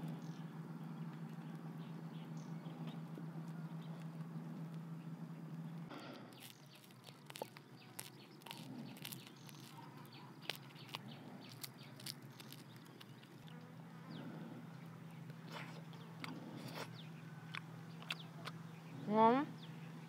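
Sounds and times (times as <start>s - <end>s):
low steady hum: 0.0s - 20.0s
crisp fish skin crackling: 5.8s - 13.6s.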